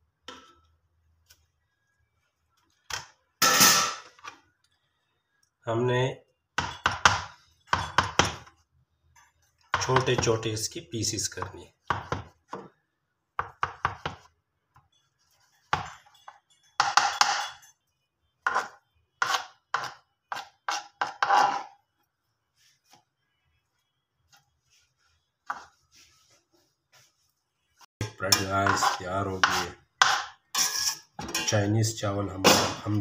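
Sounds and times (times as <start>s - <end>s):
knife chopping on plastic board: 11.9s - 12.7s, 13.4s - 14.3s, 18.5s - 21.2s.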